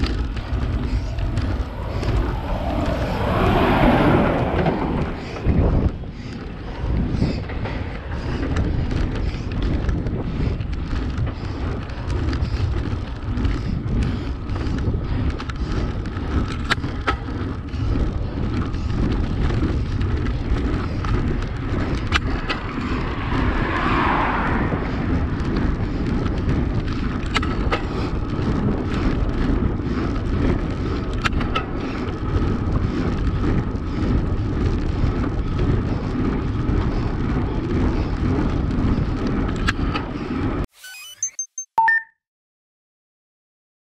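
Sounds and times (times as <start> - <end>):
car passing: 0.0 - 6.2, 19.7 - 27.2
wind rushing over camera: 0.0 - 40.7
bike tyre noise on tarmac: 0.0 - 41.0.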